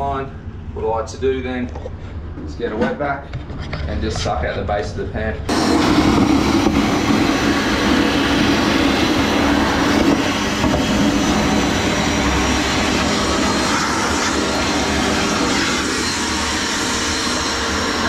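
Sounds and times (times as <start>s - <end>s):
wet vac sucking water: 5.5s - 18.0s.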